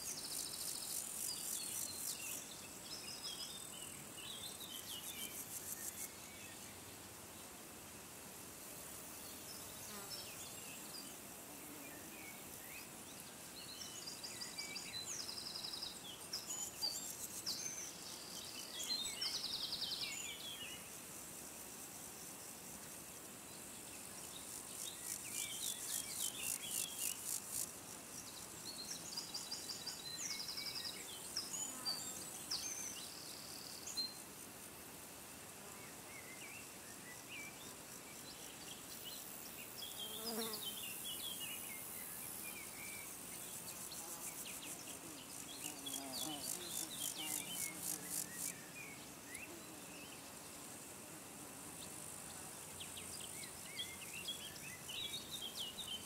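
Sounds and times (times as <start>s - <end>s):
buzzing insect passing: 39.8s - 41.0s.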